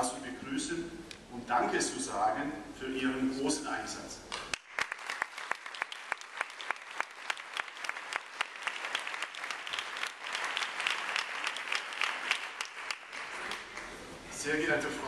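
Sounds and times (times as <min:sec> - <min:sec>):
audience applauding: 0:04.5 - 0:14.0.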